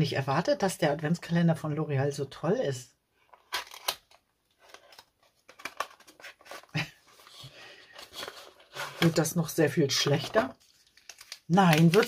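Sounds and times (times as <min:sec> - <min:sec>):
cardboard packaging rustling: 0:03.3 - 0:12.0.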